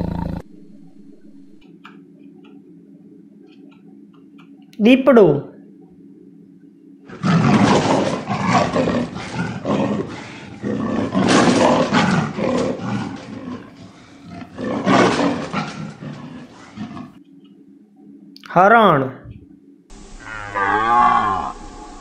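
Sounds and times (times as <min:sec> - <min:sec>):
leopard calls: 0:00.0 - 0:01.7, 0:07.1 - 0:17.2, 0:19.9 - 0:22.0.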